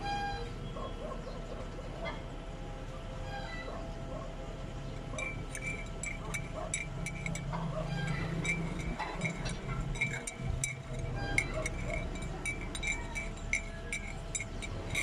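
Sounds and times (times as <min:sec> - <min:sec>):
distant diesel engine hum: 0:00.0 - 0:15.0
short high-pitched clinks: 0:05.0 - 0:15.0.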